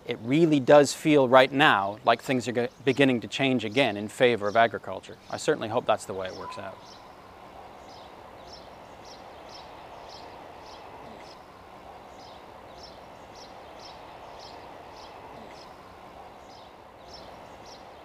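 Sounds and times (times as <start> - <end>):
steady background noise: 0.0 - 18.0
short high chirps: 6.4 - 7.0.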